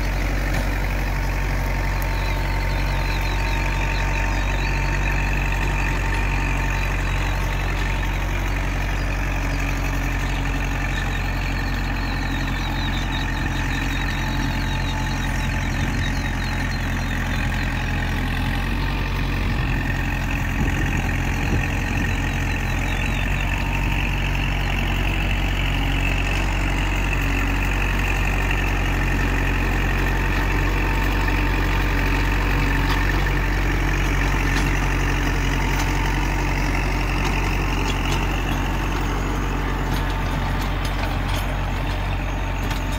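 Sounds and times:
tractor diesel engine running: 0.0 - 42.9.

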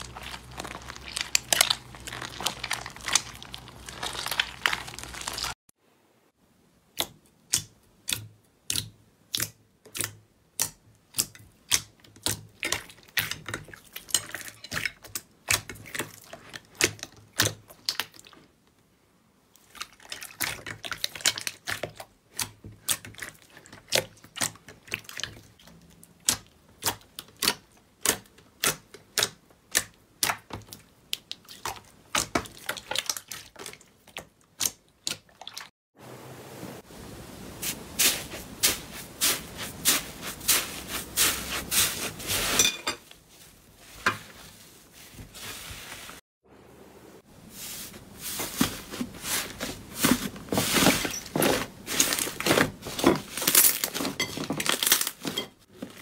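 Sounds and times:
slime squelching: 0.0 - 5.6, 19.6 - 35.7, 37.4 - 46.2, 47.6 - 56.0.

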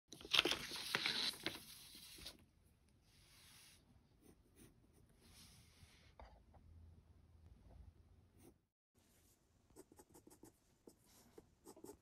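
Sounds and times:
paper rustling and sliding: 0.2 - 2.4
soft brushes of paper: 3.0 - 6.2, 8.4 - 12.0.

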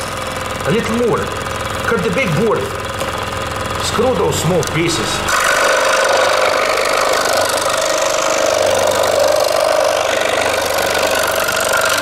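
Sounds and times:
scroll saw cutting wood: 3.8 - 12.0.

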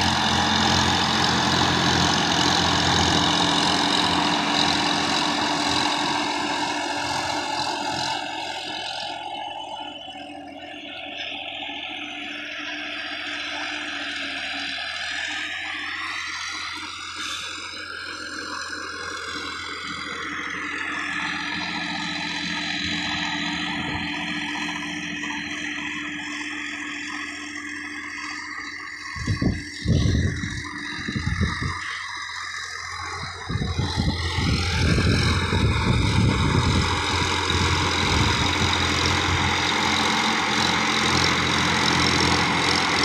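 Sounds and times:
tractor running under load: 0.0 - 43.0
whirring: 15.1 - 43.0
low rumbling bursts: 29.1 - 39.5.

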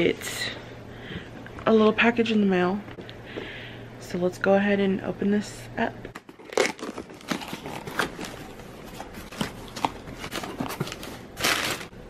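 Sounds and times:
packing tape tearing: 6.1 - 11.9
cardboard and paper crinkling: 6.2 - 11.9.

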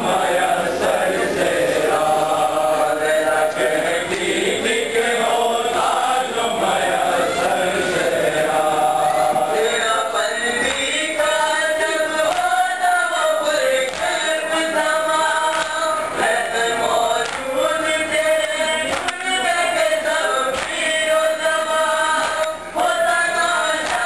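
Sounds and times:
men chanting in unison: 0.0 - 24.0.

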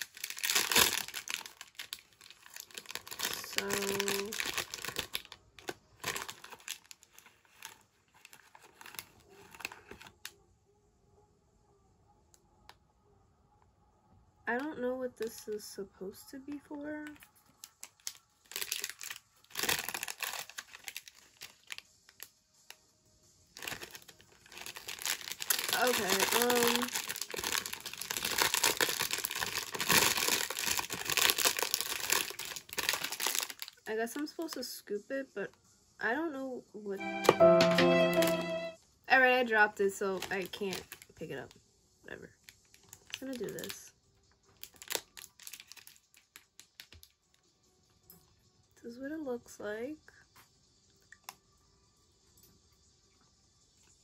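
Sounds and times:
plastic wrapper crinkling: 0.0 - 10.3, 16.6 - 22.3, 23.6 - 33.8, 40.0 - 41.2, 42.4 - 43.8, 44.5 - 47.1.

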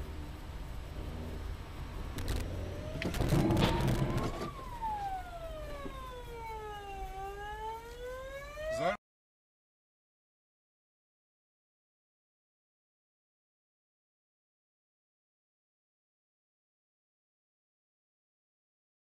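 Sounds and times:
engine and road rumble: 0.0 - 8.9
rough burst of noise with knocks: 1.0 - 4.7
police siren wailing: 2.0 - 9.0.

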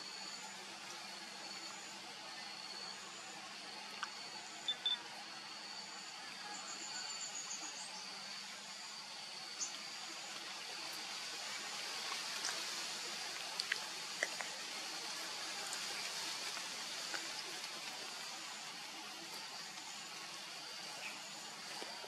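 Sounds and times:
steady hiss: 0.0 - 22.0.

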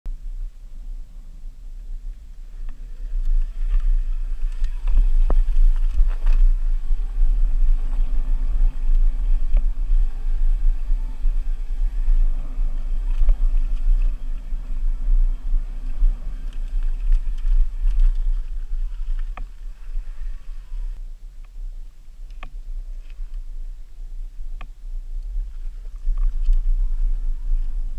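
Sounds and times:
wind rumbling over microphone: 0.1 - 27.9
electric motor whine: 2.5 - 21.0.

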